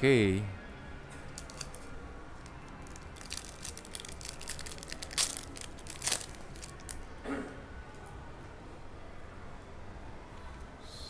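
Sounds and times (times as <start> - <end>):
foil wrapper crinkling: 1.4 - 1.9, 2.7 - 7.0
cards rustling: 1.4 - 7.0
foil ripping: 2.8 - 7.0.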